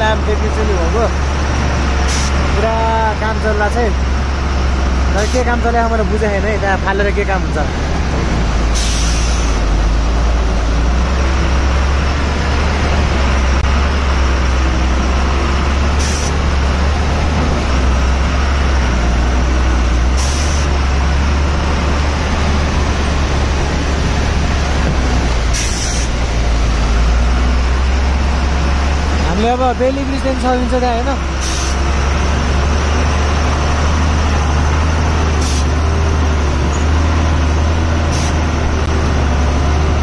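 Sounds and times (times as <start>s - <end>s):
diesel truck engine rumbling: 0.0s - 40.0s
short hisses: 8.7s - 9.6s.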